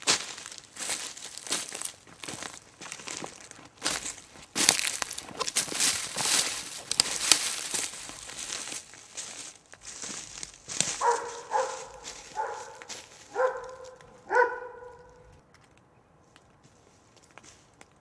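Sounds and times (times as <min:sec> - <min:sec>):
footsteps crunching through dry leaves: 0:00.0 - 0:15.4
dog barking: 0:10.9 - 0:15.3.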